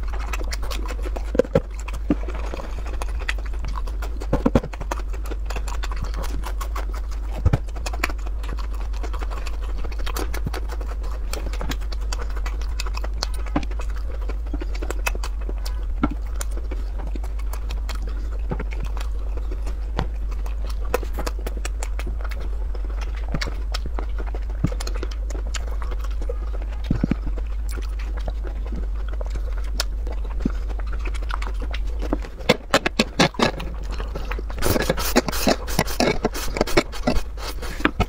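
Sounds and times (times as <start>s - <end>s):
low hum: 0.0s - 38.0s
wet chewing and mouth clicks: 0.0s - 38.0s
slurping noodles: 33.0s - 38.0s.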